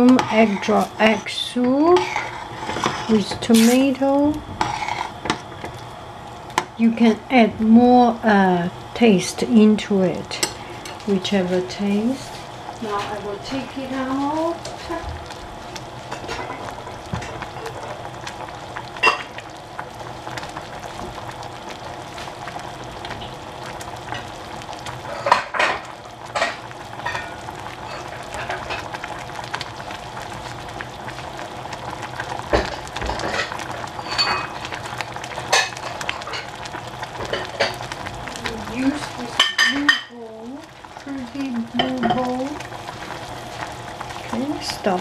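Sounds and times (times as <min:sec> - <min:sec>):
soup boiling and bubbling: 0:00.0 - 0:45.0.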